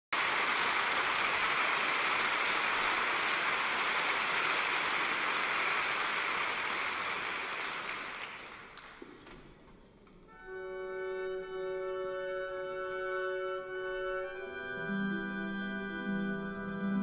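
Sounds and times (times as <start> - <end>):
audience applauding: 0.1 - 9.2.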